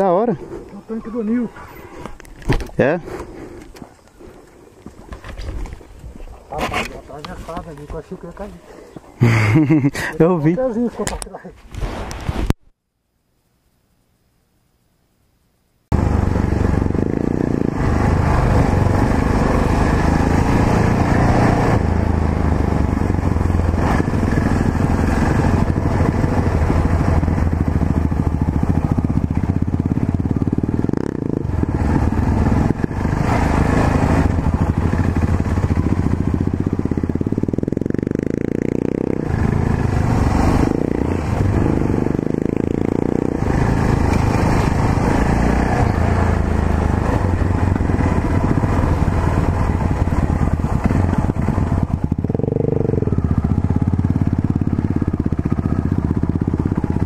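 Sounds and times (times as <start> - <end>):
motorcycle engine running: 15.9 - 57.0.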